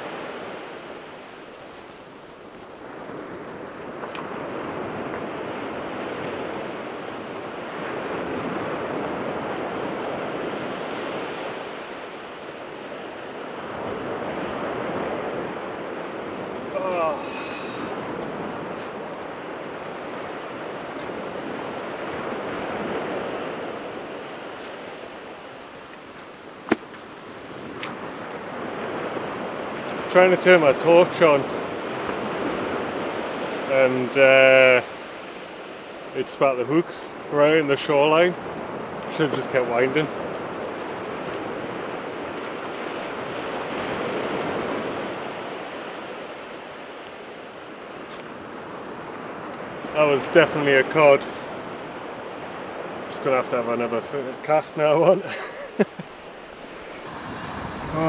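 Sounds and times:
sea surf breaking on beach: 0.0s - 58.0s.

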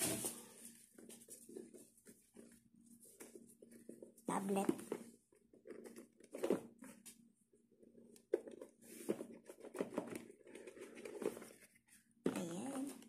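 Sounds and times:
packaging rustling: 8.2s - 13.0s.

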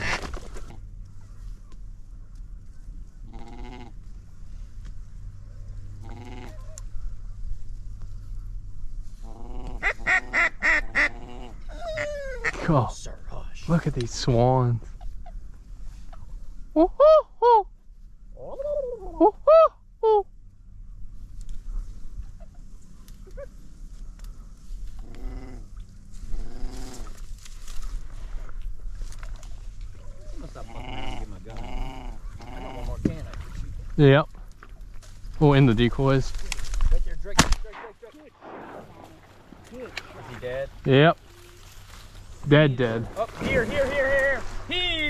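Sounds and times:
dog whining moans: 11.3s - 12.6s
wind rumble on microphone: 31.6s - 35.4s.

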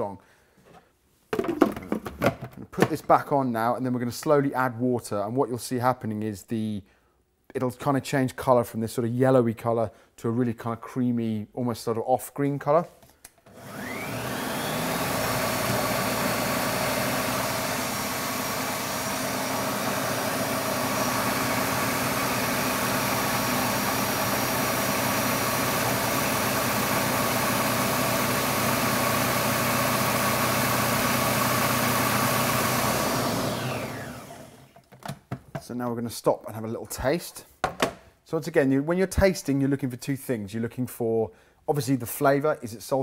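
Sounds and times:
food processor motor whining: 13.4s - 34.9s.

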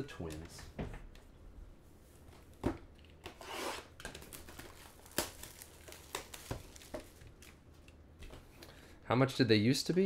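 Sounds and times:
cellophane crinkling: 4.2s - 7.6s.

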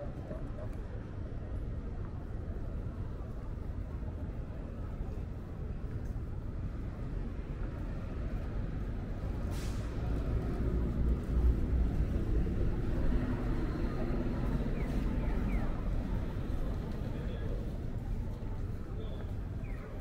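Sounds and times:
city street traffic: 0.0s - 20.0s
heavy vehicle engine rumble: 0.0s - 20.0s
short hiss: 9.5s - 9.9s.

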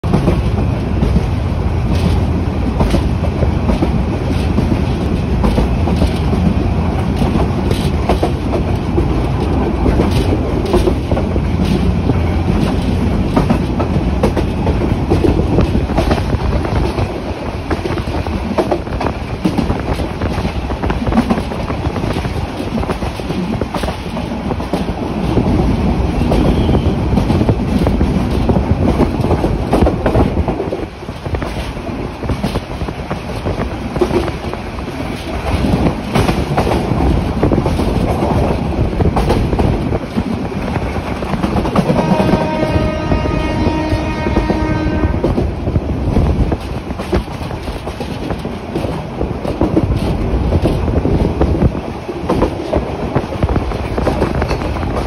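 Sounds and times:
train rumble inside carriage: 0.0s - 55.0s
wheels clacking over rail joints: 0.0s - 55.0s.

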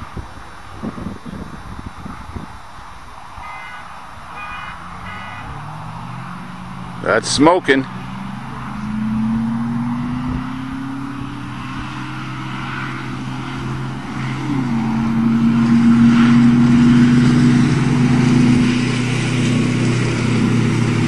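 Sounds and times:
pickup truck engines accelerating: 4.2s - 21.0s.

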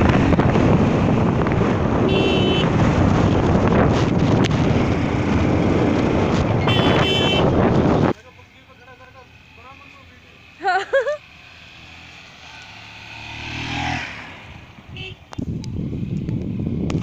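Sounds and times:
wind buffeting microphone: 0.0s - 8.2s, 14.4s - 17.0s
motorcycle engine running: 0.0s - 17.0s.

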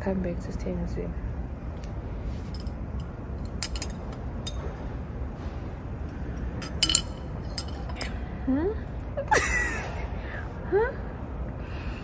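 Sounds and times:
low room noise rumble: 0.0s - 12.0s
glass bottle clinking: 3.5s - 4.7s, 6.5s - 8.1s.

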